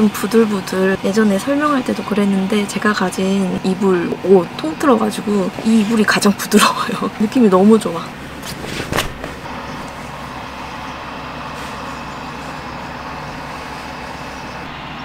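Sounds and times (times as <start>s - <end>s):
tractor engine running: 0.0s - 15.0s
blanket rustling: 8.2s - 10.4s, 11.4s - 12.8s.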